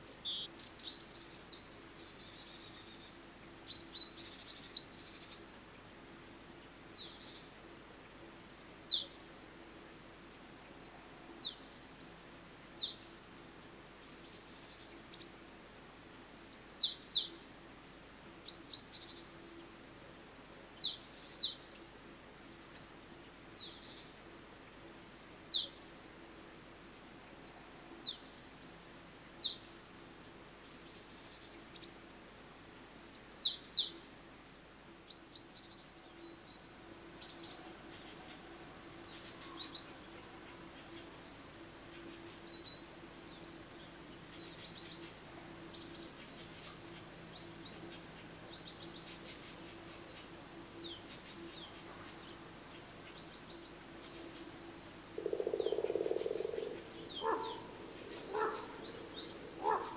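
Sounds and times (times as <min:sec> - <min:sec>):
small birds chirping: 0:00.0 - 0:05.4, 0:33.1 - 0:59.9
faint low hum: 0:00.0 - 0:59.9.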